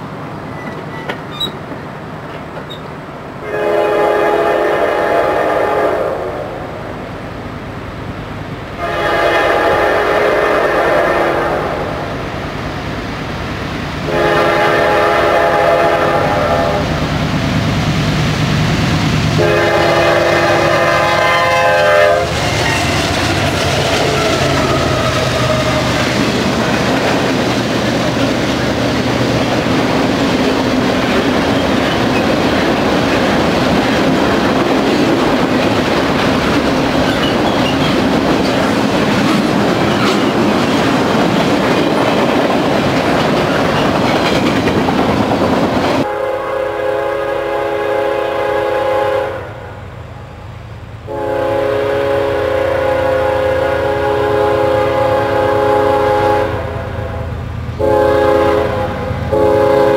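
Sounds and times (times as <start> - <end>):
train wheels rumbling on rails: 0.0 - 49.1
locomotive air horn blasts: 3.4 - 6.6, 8.8 - 12.0, 14.0 - 17.0, 19.4 - 23.1, 46.0 - 49.8, 51.1 - 59.9.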